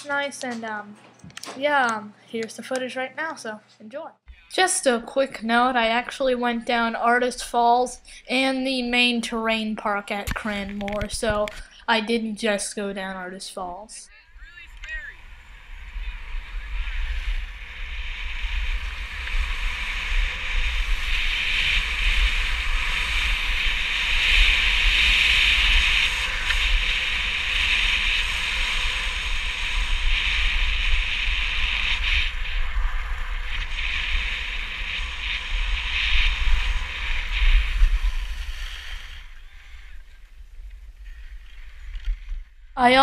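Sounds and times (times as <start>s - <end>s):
skis scraping over snow: 14.4s - 42.4s.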